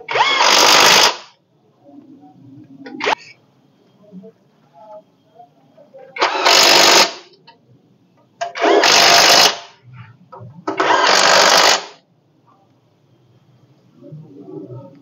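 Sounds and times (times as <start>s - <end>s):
power tool tightening bolts: 0.1s - 1.2s, 6.2s - 7.2s, 8.4s - 9.6s, 10.7s - 11.9s.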